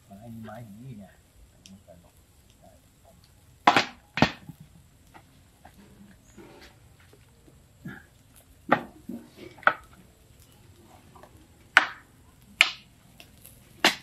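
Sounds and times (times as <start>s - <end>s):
stick knocking wood in fire: 3.6s - 5.9s, 8.6s - 10.0s, 11.1s - 14.0s.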